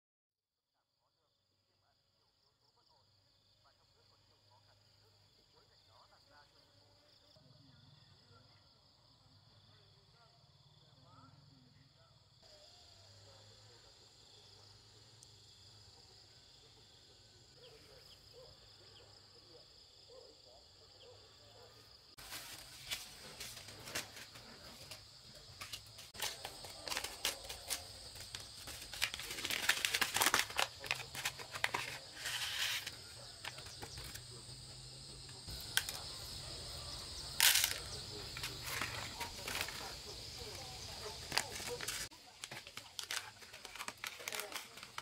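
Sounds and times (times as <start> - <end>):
faint insect chirps: 2.2 - 42.4
plastic packet crinkling: 26.2 - 34.2, 41.2 - 45.0
plastic packet tearing: 26.2 - 34.2, 37.4 - 39.8, 41.2 - 45.0.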